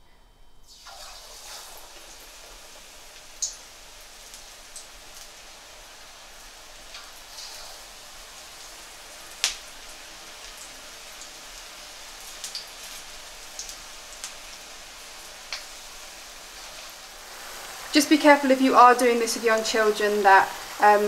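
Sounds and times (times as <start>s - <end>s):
food deep-frying in hot oil: 0.6s - 21.0s
oil pops and crackles: 9.3s - 11.3s, 12.3s - 14.6s.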